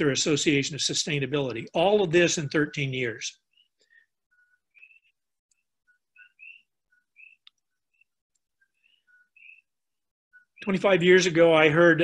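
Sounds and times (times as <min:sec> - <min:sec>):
faint high chirps: 0:03.4 - 0:10.7.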